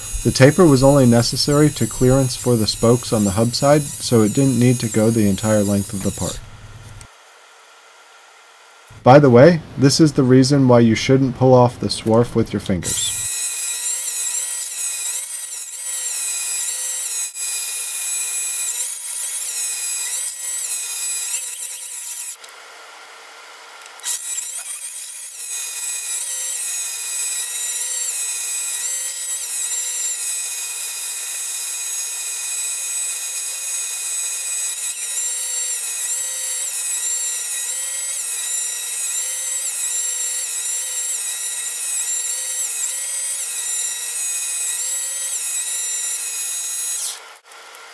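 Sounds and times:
lathe motor and gear whine: 0.0s - 7.0s
metal cutting noise: 0.0s - 7.1s, 8.8s - 22.5s, 23.9s - 47.9s.

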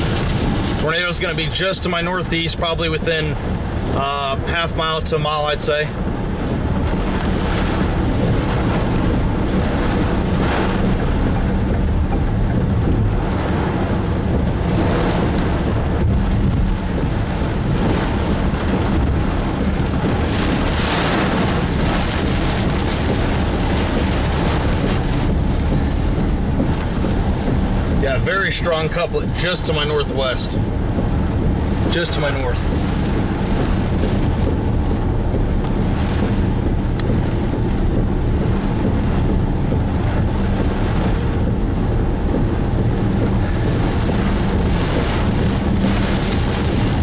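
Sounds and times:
heavy rain pounding a car: 0.0s - 47.0s
road noise: 0.0s - 47.0s.

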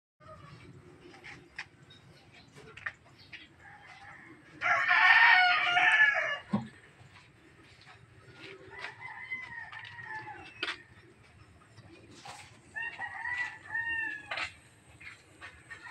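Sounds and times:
rooster crowing: 3.6s - 6.5s, 8.5s - 10.9s, 12.7s - 14.6s.

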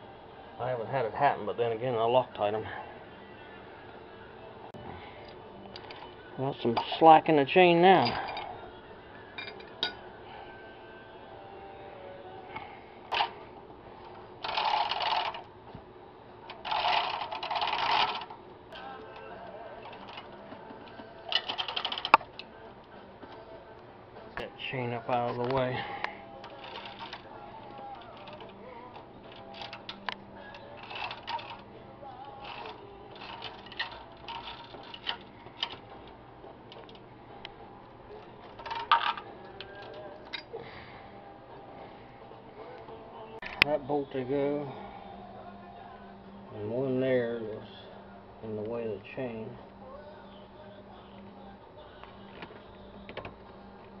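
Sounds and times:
metal tools clinking on engine: 9.4s - 10.0s, 38.6s - 39.2s
timing chain rattling: 16.6s - 18.3s, 21.3s - 22.2s.

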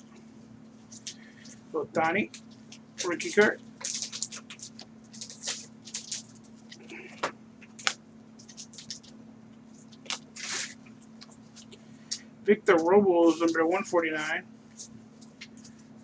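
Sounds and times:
faint steady hum: 0.0s - 16.0s
cards scraping and sliding: 9.8s - 11.8s.

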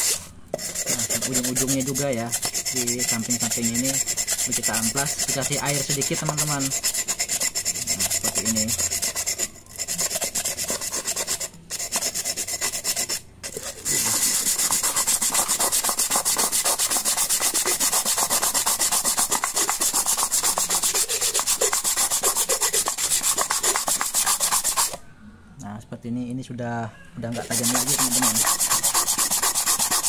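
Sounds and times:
glass rubbed on wet sandpaper: 0.0s - 25.0s, 27.3s - 30.0s.

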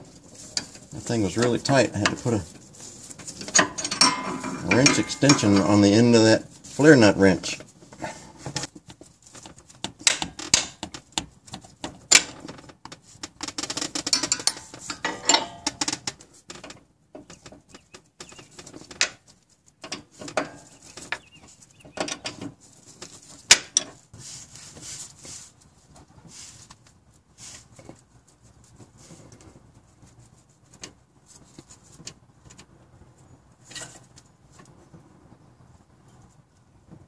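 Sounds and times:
wrench clinking on metal: 3.4s - 5.9s, 14.1s - 16.0s.

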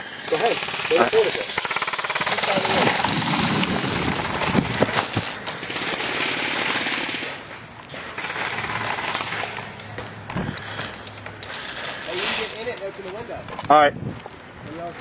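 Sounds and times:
airsoft gun full-auto bursts: 0.0s - 7.4s, 8.0s - 9.7s, 10.4s - 12.5s.

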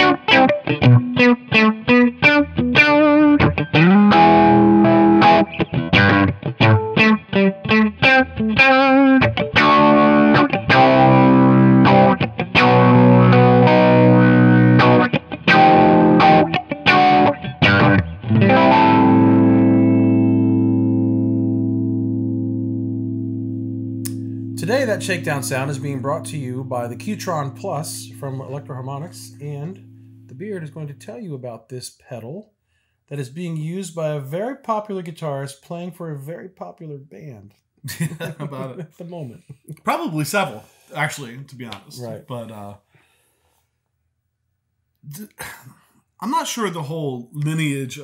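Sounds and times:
electric guitar with envelope filter: 0.0s - 31.4s.

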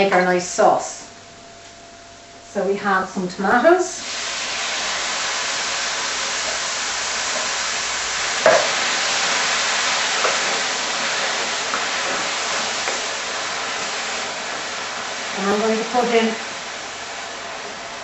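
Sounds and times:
tomatoes sizzling in frying pan: 3.8s - 18.0s.

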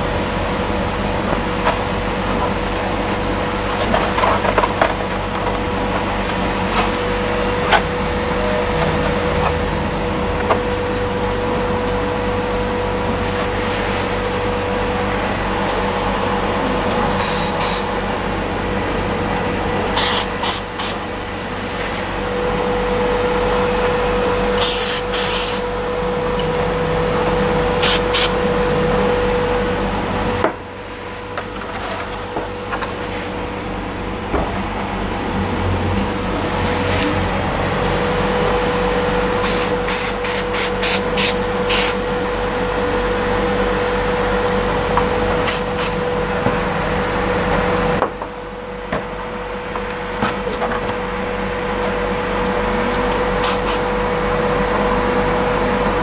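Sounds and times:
machine hum: 0.0s - 56.0s
aerosol spray can hissing: 17.2s - 17.9s, 20.0s - 21.0s, 24.6s - 25.6s, 27.8s - 28.3s, 39.4s - 42.0s, 53.4s - 53.8s.

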